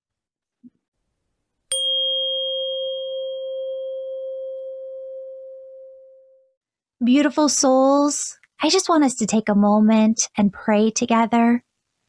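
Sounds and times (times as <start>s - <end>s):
tuning fork ringing: 1.7s - 6.6s.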